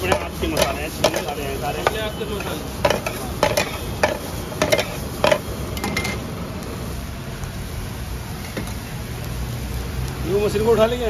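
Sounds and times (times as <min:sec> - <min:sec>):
spatula knocking on frying pan: 0:00.0 - 0:06.1
frying hiss: 0:00.0 - 0:11.0.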